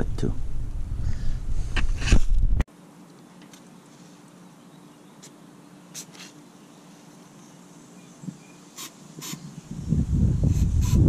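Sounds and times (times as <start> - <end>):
aerosol spray hissing: 8.7 - 9.6, 10.4 - 11.0.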